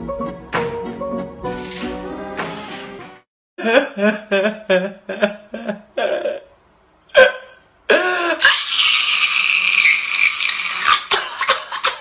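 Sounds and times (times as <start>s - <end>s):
person hiccuping: 7.1s - 8.7s.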